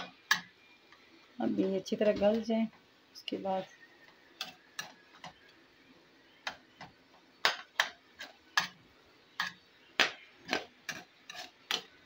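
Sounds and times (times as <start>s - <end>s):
tomatoes cooking in oil: 0.0s - 12.0s.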